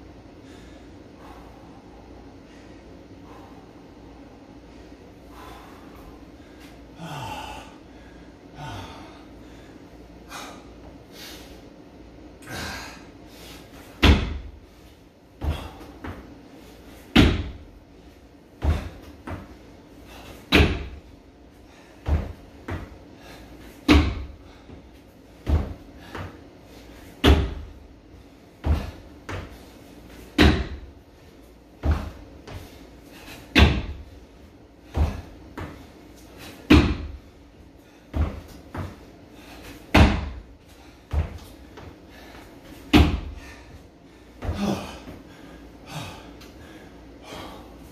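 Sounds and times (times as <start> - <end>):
feet thudding on rubber floor: 13.7 - 17.8, 18.5 - 21.1, 21.7 - 27.8, 28.5 - 46.1
feet landing on wooden box: 14.0 - 14.6, 15.4 - 16.3, 17.0 - 17.7, 18.6 - 19.6, 20.3 - 21.1, 22.0 - 22.9, 23.7 - 24.5, 25.4 - 26.4, 27.1 - 27.8, 28.6 - 30.9, 31.8 - 34.1, 34.8 - 37.3, 38.1 - 40.5, 41.1 - 43.6, 44.4 - 45.2.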